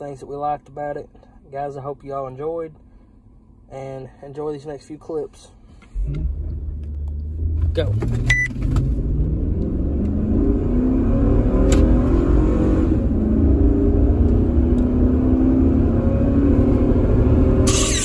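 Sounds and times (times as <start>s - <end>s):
car engine accelerating: 5.8s - 18.0s.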